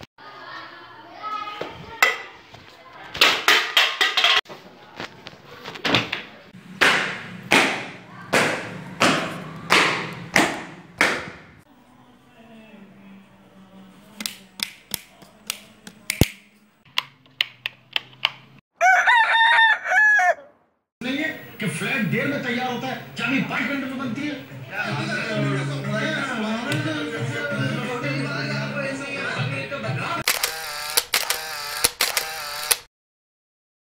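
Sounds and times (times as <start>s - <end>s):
rooster crowing: 18.8s - 20.6s.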